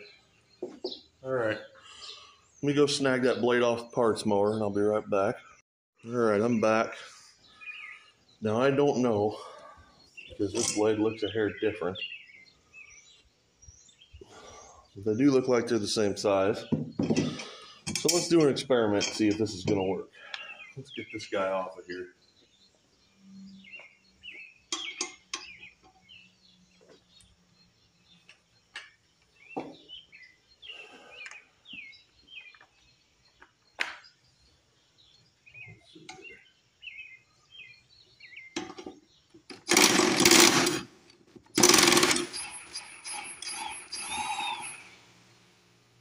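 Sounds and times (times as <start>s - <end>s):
handling clicks and clanks: 10.5s - 11.1s, 17.0s - 19.8s, 38.6s - 44.2s
rattling: 39.5s - 40.9s, 41.6s - 44.8s.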